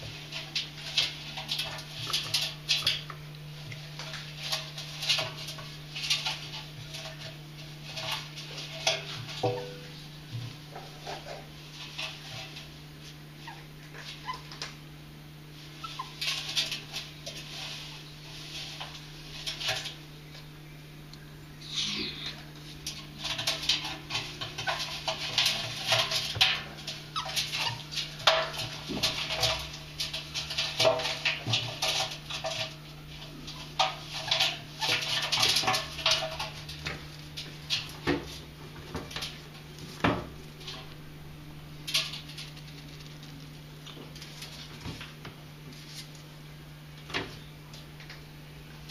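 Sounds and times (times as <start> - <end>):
claws scratching on metal drum: 0.0 - 14.5, 15.6 - 20.1, 21.6 - 41.0
ferrets squeaking: 15.8 - 16.2
ferret vocal sounds: 21.6 - 22.5.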